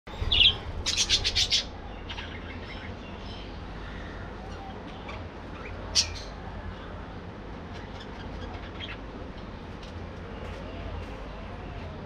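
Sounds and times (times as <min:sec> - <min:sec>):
low steady rumble: 0:00.1 - 0:07.7
budgerigars chirping: 0:00.2 - 0:02.9.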